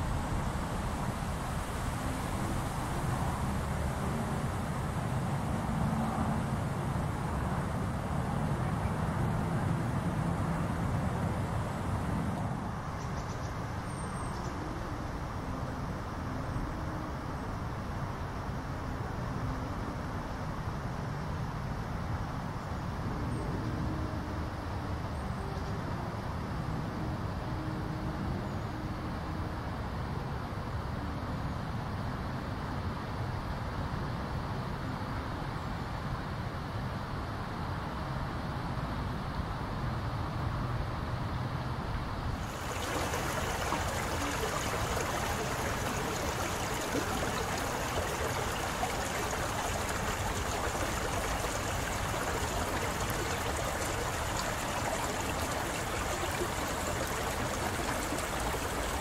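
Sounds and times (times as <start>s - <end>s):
water running through grass: 42.4s - 59.0s
water splashing into pebbly pool: 42.4s - 59.0s.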